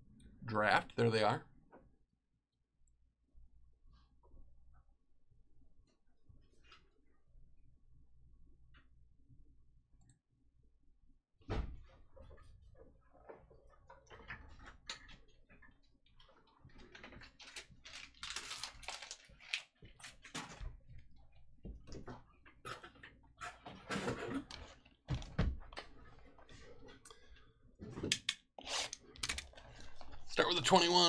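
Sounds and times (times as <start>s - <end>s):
cards rustling and clicking: 17.4s - 19.8s.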